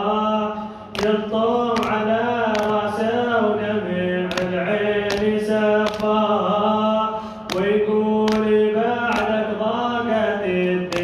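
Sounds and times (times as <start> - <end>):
man chanting into microphone: 0.0 - 11.0
sharp slap beat: 1.0 - 3.0, 4.2 - 6.3, 7.5 - 9.4.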